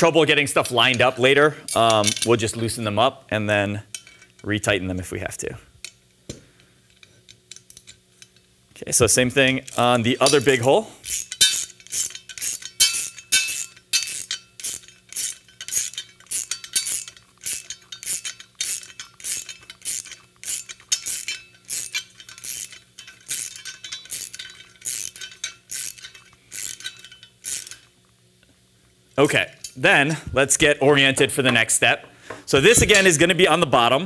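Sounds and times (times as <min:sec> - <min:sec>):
wrench ratcheting metallic clicks: 0:09.4 - 0:27.9.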